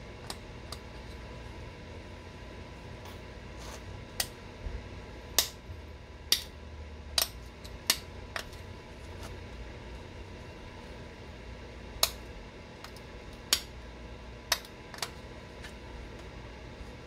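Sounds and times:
stone flakes snapping clicks: 12.8 - 13.7.

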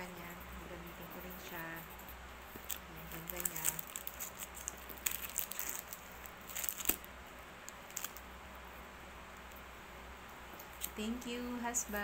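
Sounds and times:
plastic wrap crinkling: 2.6 - 7.1, 7.7 - 8.2.

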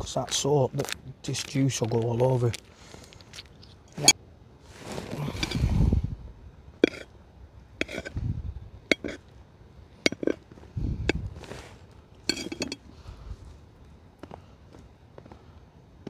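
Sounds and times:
metal cookware clinking: 8.9 - 9.2, 12.3 - 12.8.

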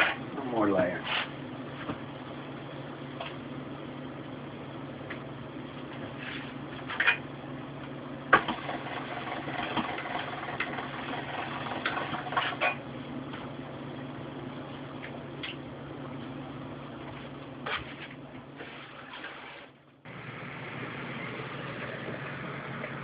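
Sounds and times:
pasta machine rollers rattling: 8.4 - 12.7
low hum: 19.9 - 23.0.

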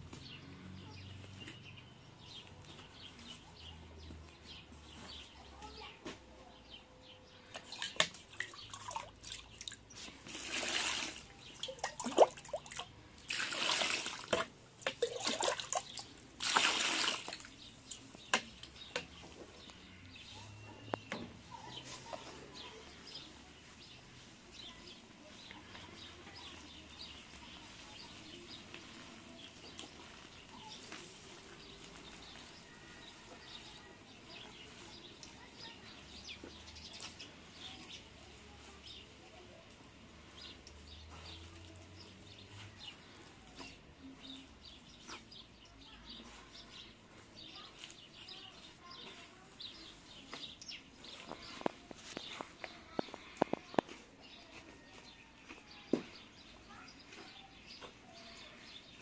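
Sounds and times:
small birds chirping: 0.0 - 59.0
hands kneading dough: 17.4 - 58.6.

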